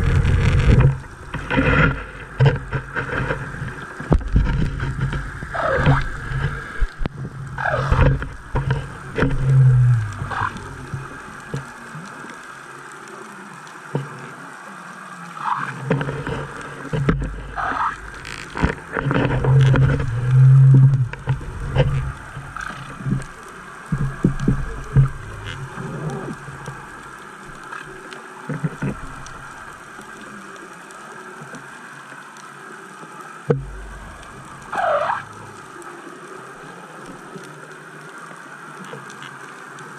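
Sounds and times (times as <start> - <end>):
underwater hum: 0.0 - 39.9
low underwater thumps: 33.5 - 34.3.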